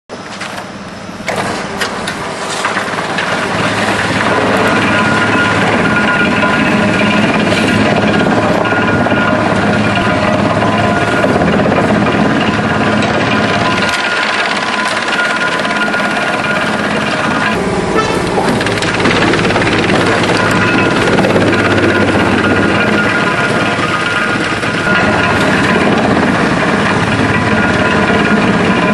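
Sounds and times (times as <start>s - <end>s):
wood chipper drone: 0.1s - 28.9s.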